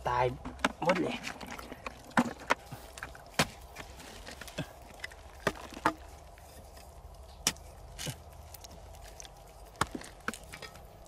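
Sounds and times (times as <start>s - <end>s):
digging tool striking dry mud: 2.2s - 4.4s, 7.4s - 8.8s, 9.7s - 10.8s.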